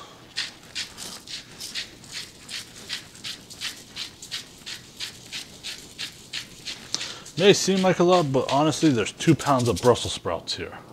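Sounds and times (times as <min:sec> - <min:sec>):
salt grinder crunching: 0:00.3 - 0:10.1.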